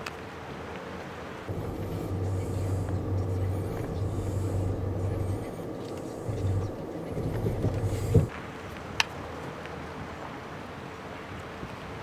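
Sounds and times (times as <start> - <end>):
vehicle engine idling: 1.5 - 8.3.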